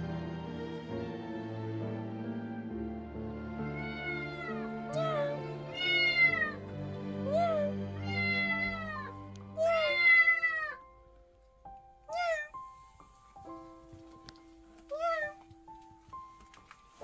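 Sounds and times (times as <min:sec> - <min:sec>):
soft background music: 0:00.0 - 0:17.0
kittens meowing: 0:03.7 - 0:06.6, 0:07.4 - 0:10.8.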